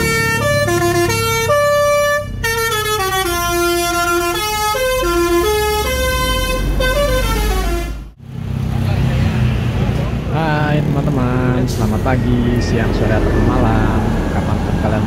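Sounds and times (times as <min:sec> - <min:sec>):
multi-tone bus horn melody: 0:00.0 - 0:08.2
low engine rumble: 0:00.0 - 0:15.0.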